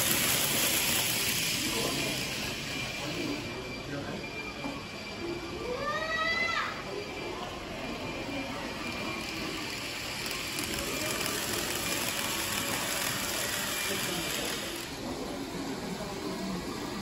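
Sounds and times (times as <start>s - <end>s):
model train clattering on track: 0.0s - 2.8s, 9.1s - 15.2s.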